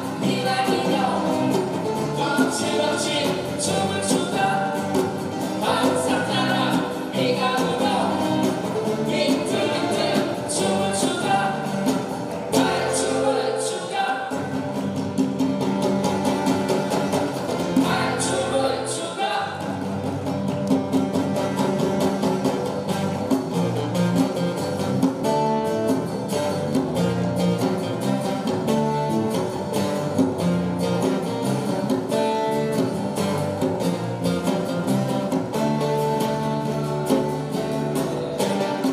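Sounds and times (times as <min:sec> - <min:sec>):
person singing: 0:00.0 - 0:14.7, 0:17.8 - 0:19.7
bass guitar: 0:00.0 - 0:38.9
strummed acoustic guitars: 0:00.0 - 0:38.9
djembe drumming: 0:14.3 - 0:18.4, 0:19.6 - 0:38.9.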